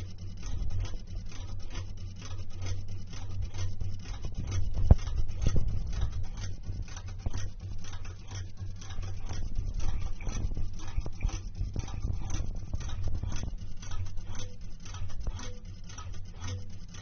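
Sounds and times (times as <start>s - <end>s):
dial rapid ticking clicks: 0.0s - 17.0s
low motor hum: 0.0s - 17.0s.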